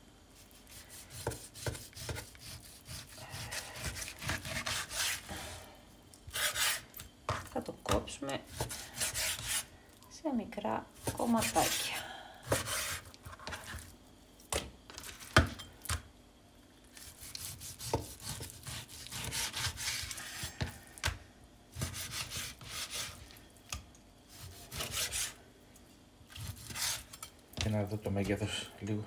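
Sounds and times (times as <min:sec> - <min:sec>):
knife sawing through meat: 0:00.6 - 0:05.3, 0:06.3 - 0:06.8, 0:08.5 - 0:09.7, 0:17.0 - 0:20.2, 0:21.8 - 0:23.2, 0:24.3 - 0:25.4, 0:26.4 - 0:27.1.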